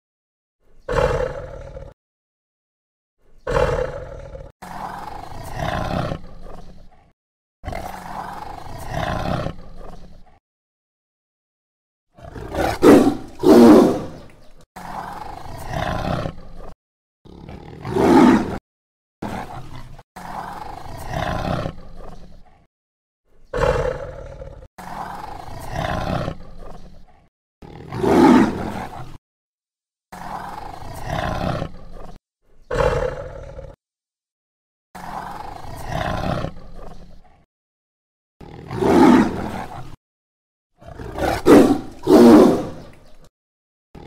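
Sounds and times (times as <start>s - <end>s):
tiger roaring and growling: 0.8s - 2.0s, 3.4s - 10.4s, 12.2s - 18.6s, 19.2s - 22.7s, 23.5s - 29.2s, 30.1s - 33.8s, 35.0s - 37.4s, 38.4s - 40.0s, 40.8s - 43.2s.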